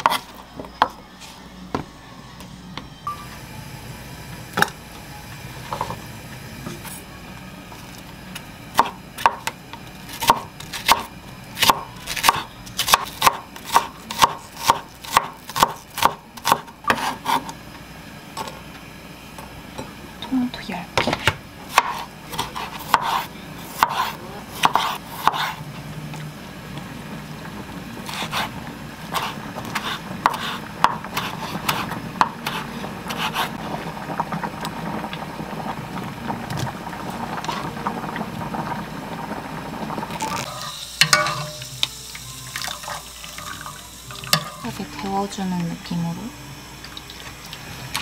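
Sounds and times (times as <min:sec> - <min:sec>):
strainer and spoon clinking in saucepan: 0:40.5 - 0:41.7.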